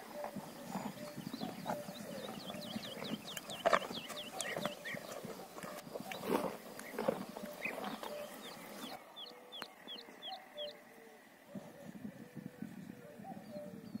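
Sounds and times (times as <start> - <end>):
cows munching: 0.0 - 9.3
bird chirping: 0.0 - 14.0.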